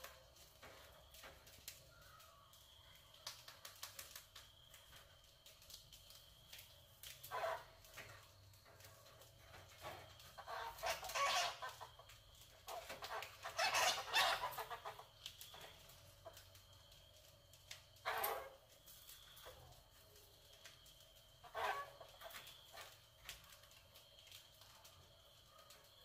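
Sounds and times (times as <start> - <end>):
rats squeaking and scuffling: 6.1 - 16.6.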